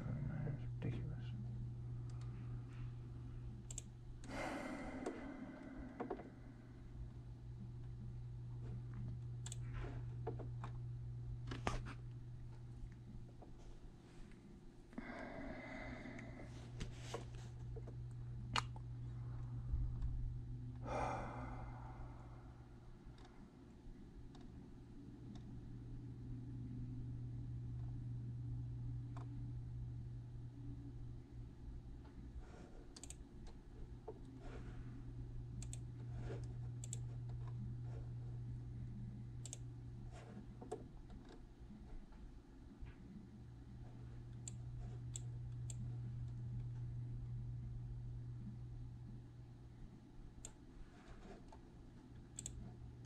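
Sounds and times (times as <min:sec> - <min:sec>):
low room hum: 0:00.0 - 0:53.0
sharp clicks: 0:03.6 - 0:04.3, 0:52.4 - 0:52.6.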